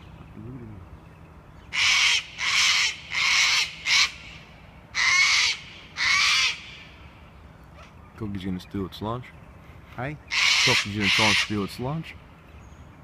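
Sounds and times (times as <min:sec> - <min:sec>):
bird giving harsh rasping calls: 0:01.6 - 0:07.0, 0:10.2 - 0:11.8.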